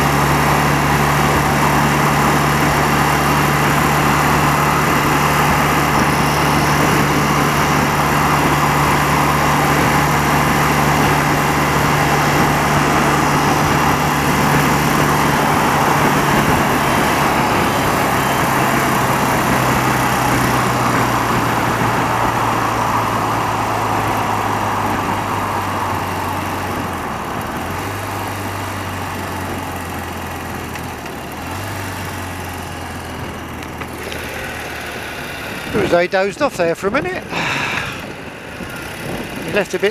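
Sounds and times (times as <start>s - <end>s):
wind rush: 0.0s - 27.9s, 36.9s - 39.8s
motorcycle engine running: 0.0s - 36.3s.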